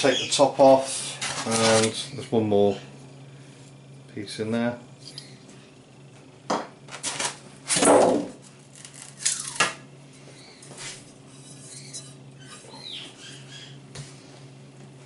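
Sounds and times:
polystyrene scraping and squeaking: 8.7 - 9.6.

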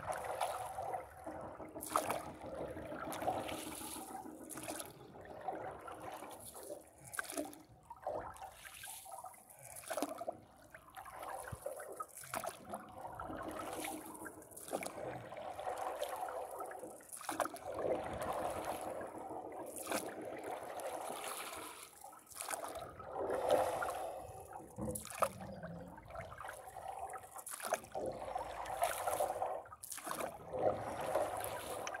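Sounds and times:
paddle splashing through water: 0.0 - 1.1, 1.8 - 10.2, 10.9 - 32.0
water lapping against a board: 0.0 - 32.0.

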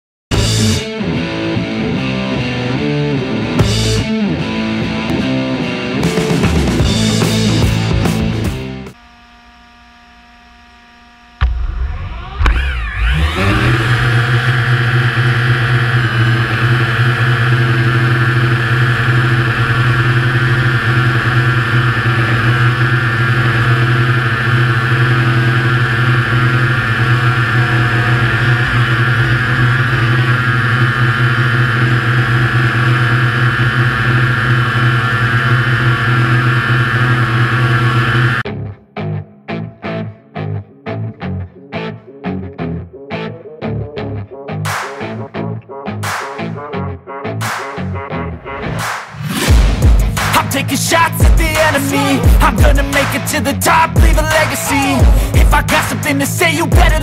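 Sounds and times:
drone motors whining and buzzing: 6.2 - 38.4, 49.2 - 57.0.

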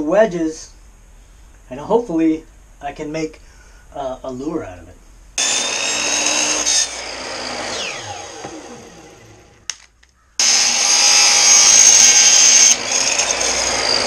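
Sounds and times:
miter saw cutting husk: 5.4 - 9.8, 10.4 - 14.0
saw winding down whine: 5.4 - 9.8, 10.4 - 14.0.

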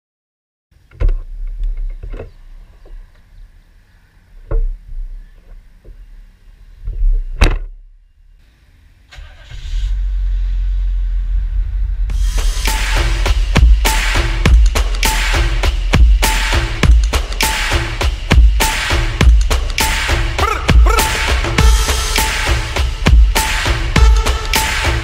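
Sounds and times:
low car engine drone: 8.1 - 25.0
road noise hiss: 8.3 - 25.0
sharp thumps: 12.1 - 25.0.

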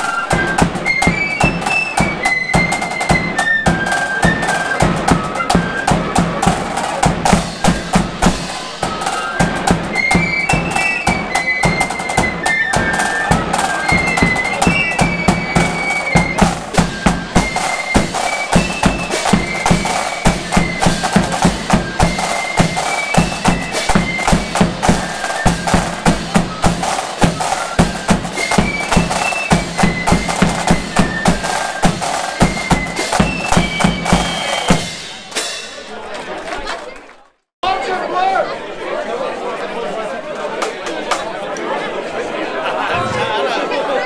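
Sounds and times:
flutes playing melody: 0.0 - 35.3
snare drums: 0.0 - 36.1
bass drum beating: 6.0 - 9.0, 23.2 - 35.3.

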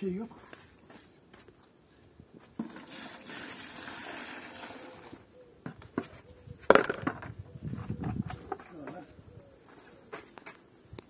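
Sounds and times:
liquid pouring into a bucket: 2.6 - 5.2.

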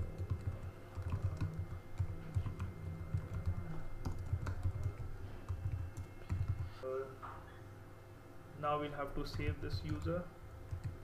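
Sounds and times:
typing on computer keyboard: 0.0 - 6.8, 9.2 - 11.0.

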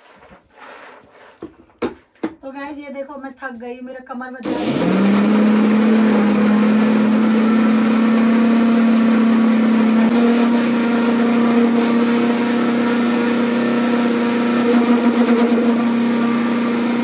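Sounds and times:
mixer grinder motor running: 4.4 - 17.0.

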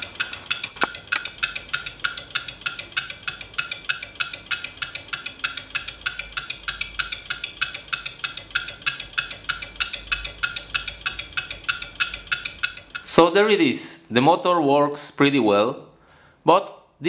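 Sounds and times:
solenoid engine clicking rapidly: 0.0 - 13.4.

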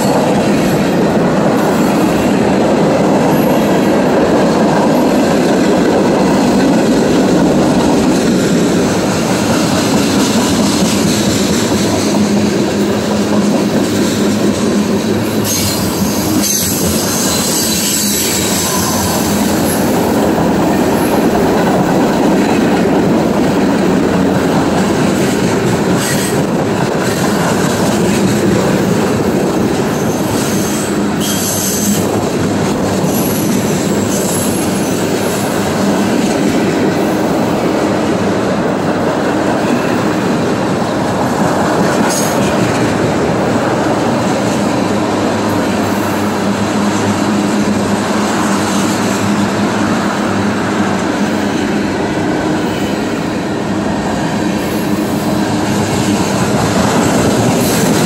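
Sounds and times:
train wheels rumbling on rails: 0.0 - 58.0
high-pitched wheel squeals: 15.4 - 19.8.

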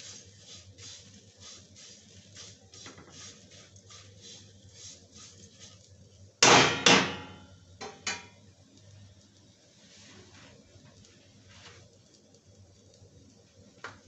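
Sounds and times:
spatula scraping dry snack in pan: 0.0 - 5.9
spatula knocking metal pan: 6.4 - 8.4.

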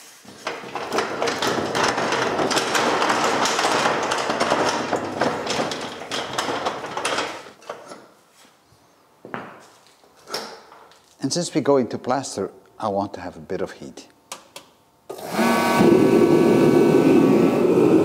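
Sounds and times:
scaffold tower rolling on bricks: 0.4 - 7.5.

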